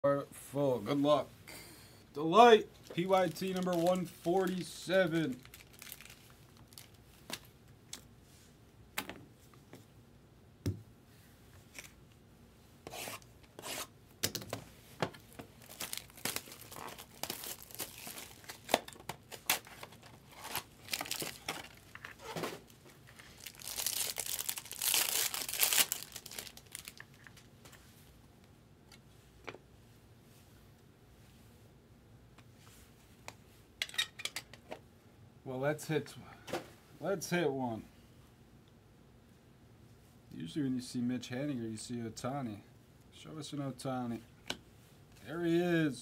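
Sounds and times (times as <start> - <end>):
cardboard and wrapping rustling: 2.8 - 7.5, 15.0 - 27.9
foil pack tearing and crinkling: 3.0 - 7.0, 15.6 - 27.4.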